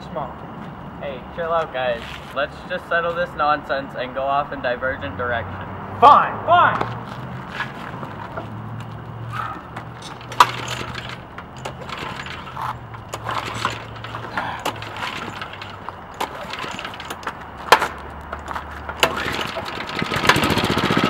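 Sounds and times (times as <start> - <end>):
recoil starter pulls: 9.3 - 21.0
sharp metallic clicks: 9.7 - 21.0.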